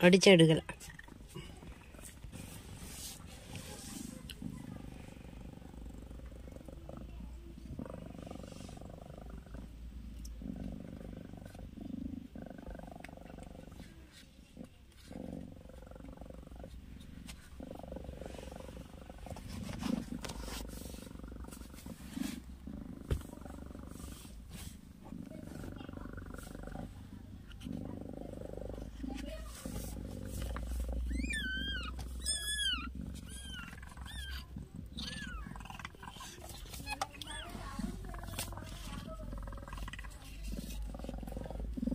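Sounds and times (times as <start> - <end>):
cat purring: 0.0 - 41.9
low steady rumble: 0.0 - 41.9
kitten mewing: 31.0 - 39.0.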